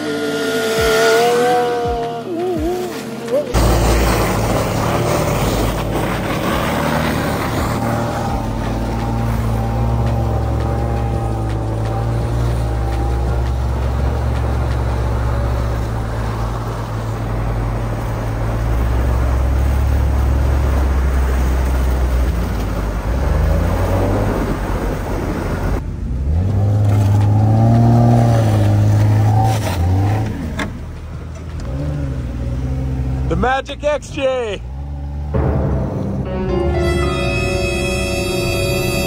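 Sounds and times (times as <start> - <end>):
engine revving up and down: 0.0 - 17.3
tyre noise on snow: 0.0 - 25.8
low engine drone: 0.7 - 26.3, 34.6 - 39.0.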